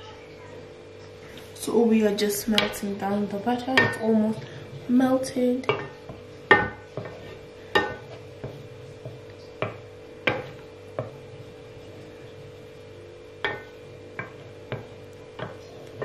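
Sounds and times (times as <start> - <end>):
faint steady hum: 0.0 - 16.0
wooden spoon tapping a skillet: 3.6 - 4.5, 5.6 - 12.6, 13.4 - 16.0.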